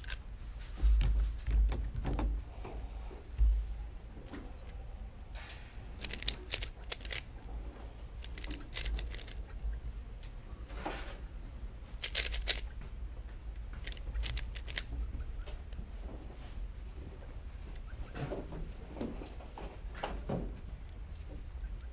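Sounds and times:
puzzle cube plastic clicks: 6.0s - 7.3s, 8.2s - 9.4s, 12.0s - 12.8s, 13.7s - 14.9s.

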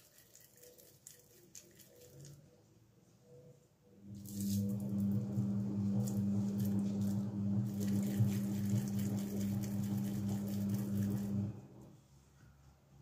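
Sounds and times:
hands rolling meatballs squishing: 0.0s - 2.5s.

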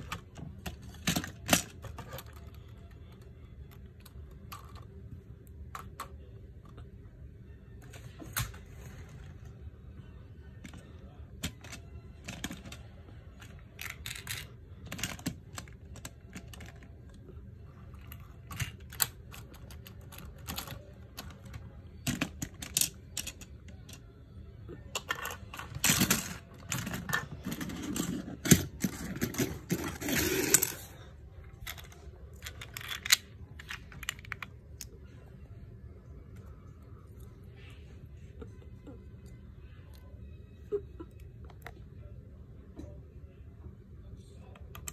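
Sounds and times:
plastic bricks clicking: 31.6s - 34.9s.

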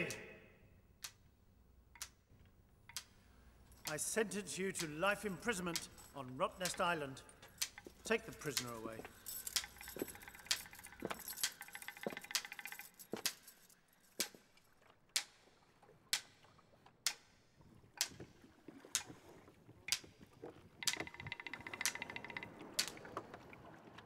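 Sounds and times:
heavy chains clinking: 3.6s - 14.3s.

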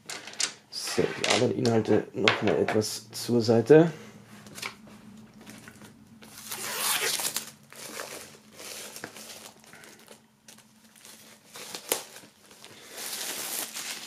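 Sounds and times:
plastic wrap crinkling: 5.4s - 14.0s.

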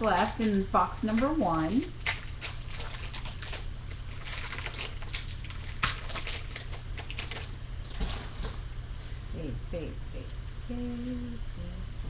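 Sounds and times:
foil wrapper crinkling and tearing: 0.0s - 8.6s.

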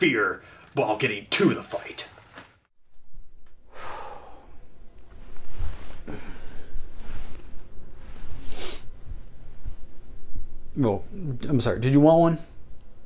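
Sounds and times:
clothing rustling: 2.0s - 2.7s, 5.0s - 9.9s
low rumbling bumps: 2.8s - 13.0s
man exhaling: 3.6s - 4.7s, 5.8s - 7.4s.

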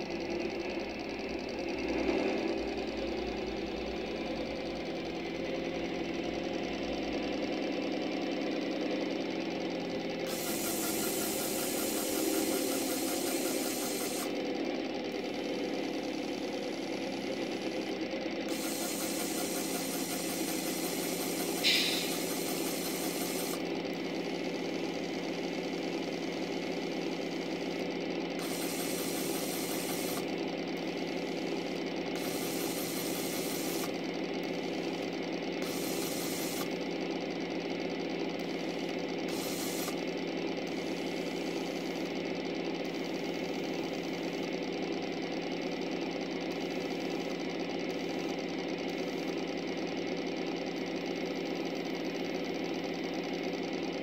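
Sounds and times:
model train motor buzzing: 10.1s - 14.4s, 15.0s - 36.9s, 38.4s - 44.5s.

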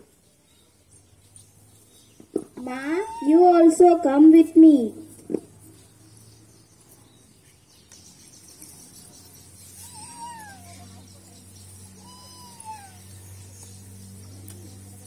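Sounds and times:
cat meowing: 2.7s - 3.4s, 9.8s - 10.9s, 12.0s - 13.2s.

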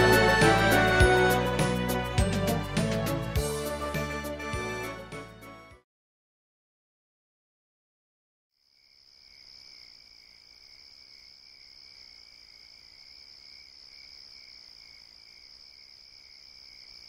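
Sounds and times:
crickets chirping: 8.6s - 17.0s.

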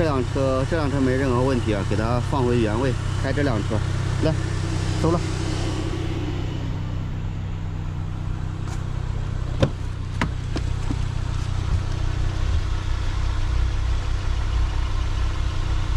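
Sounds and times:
car engine idling: 0.0s - 15.9s
sharp knocks: 9.5s - 11.8s.

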